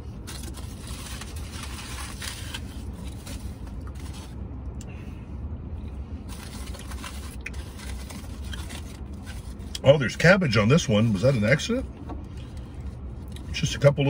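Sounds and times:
steady low hum: 0.0s - 14.0s
foil wrapper crinkling: 0.2s - 4.4s, 6.3s - 9.8s.

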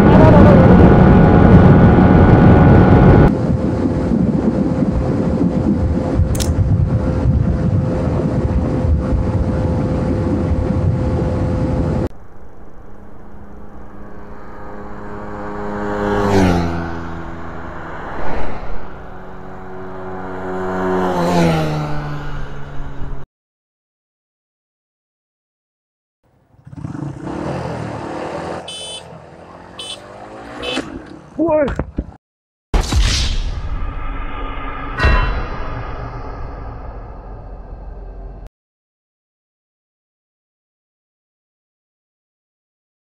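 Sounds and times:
heavy wind rush: 0.0s - 23.2s
motorcycle engine at high rpm: 0.0s - 23.2s, 26.4s - 31.2s
vehicles passing by: 0.0s - 23.2s, 26.3s - 32.2s
loud thump: 32.8s - 38.4s.

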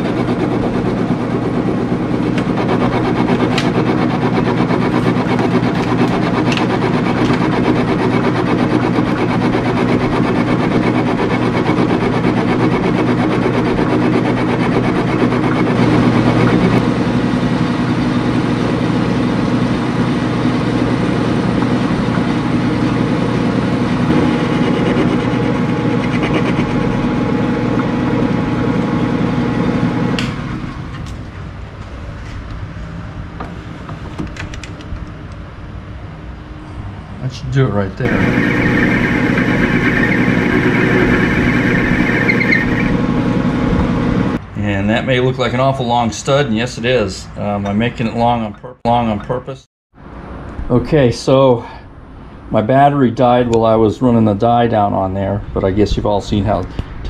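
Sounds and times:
metal lathe droning: 0.0s - 30.6s, 38.0s - 44.4s.

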